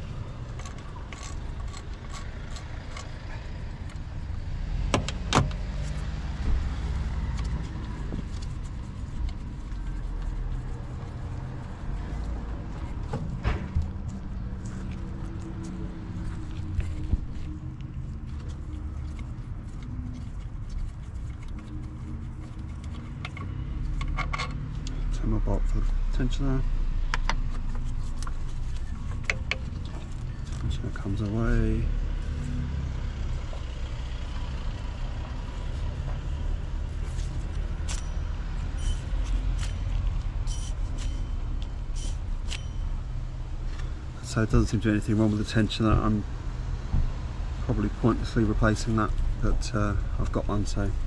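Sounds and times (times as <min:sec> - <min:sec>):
steady low rumble: 0:00.0 - 0:24.1.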